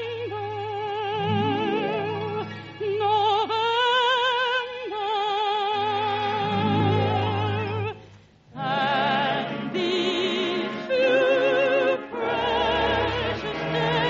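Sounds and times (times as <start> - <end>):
operatic singing with vibrato: 0.0 - 14.0
orchestra playing: 1.1 - 3.4, 6.4 - 8.0.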